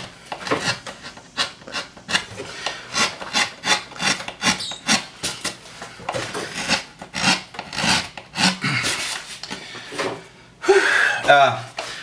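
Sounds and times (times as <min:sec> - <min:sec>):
gouge scraping wood: 0:00.0 - 0:09.4.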